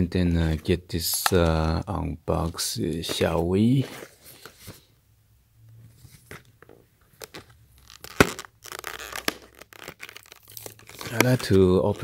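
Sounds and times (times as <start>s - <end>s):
plastic blister pack crinkling: 7.2s - 12.0s
plastic crackling: 7.2s - 12.0s.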